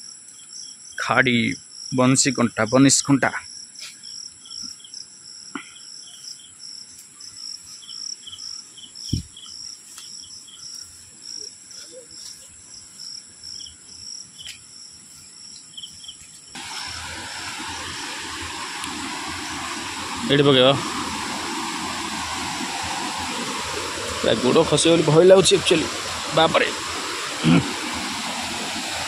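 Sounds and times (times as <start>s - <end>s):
crickets chirping: 0.0s - 29.0s
high insect drone: 0.0s - 29.0s
dull thumps: 9.1s - 9.3s
steady rushing noise: 16.6s - 29.0s.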